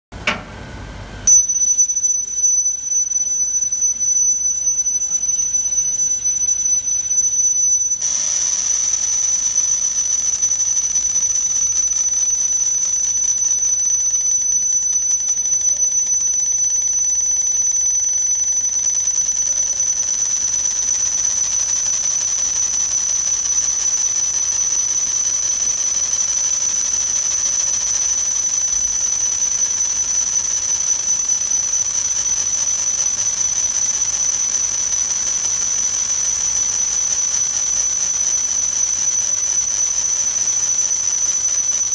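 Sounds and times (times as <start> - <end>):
laser machine high-pitched whine: 1.3 - 41.9.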